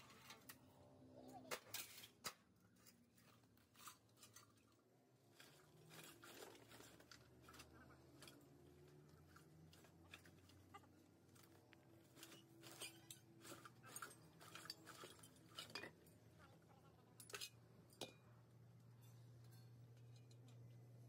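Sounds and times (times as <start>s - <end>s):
faint metal clinks and taps: 12.2s - 20.9s.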